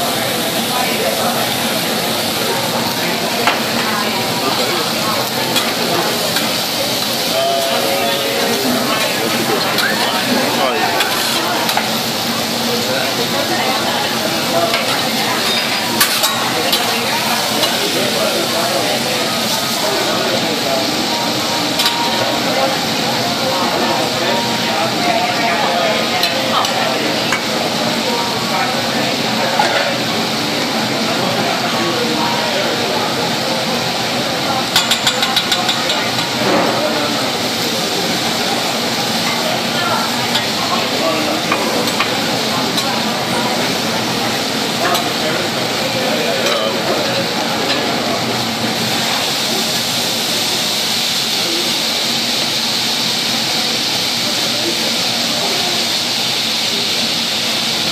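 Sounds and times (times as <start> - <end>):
meat sizzling on a griddle: 0.0 - 57.9.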